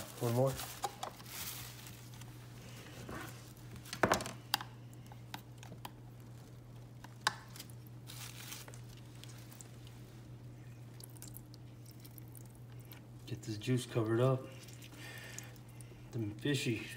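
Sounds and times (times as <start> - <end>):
plastic sheeting crinkling: 0.0 - 2.8, 8.0 - 10.2
steady low hum: 0.0 - 16.9.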